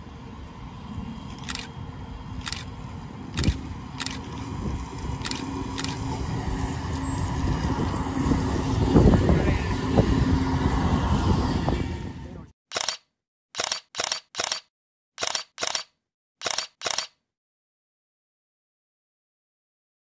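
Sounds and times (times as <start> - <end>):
tram passing: 0.0 - 12.5
wheels running on rails: 0.1 - 12.2
sharp clicks: 1.3 - 1.7, 2.4 - 2.7, 3.4 - 4.3, 5.2 - 6.0, 12.7 - 17.2
motor hum: 1.3 - 9.2.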